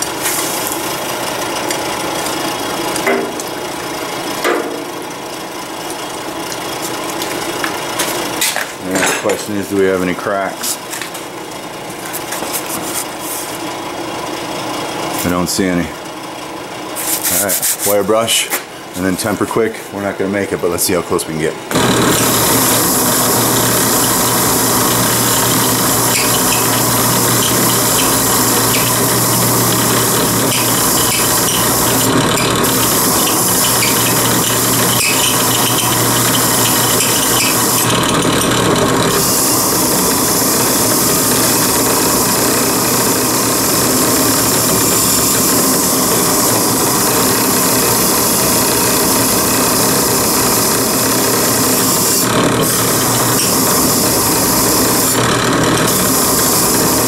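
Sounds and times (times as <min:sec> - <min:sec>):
motor hum: 0:21.7 - 0:57.0
wire wheel brushing steel blade: 0:21.8 - 0:57.0.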